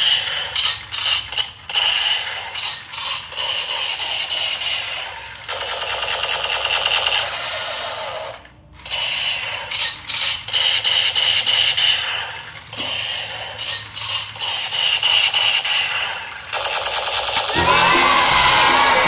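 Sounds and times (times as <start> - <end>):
toy gun electronic firing buzz: 0.0 - 18.9.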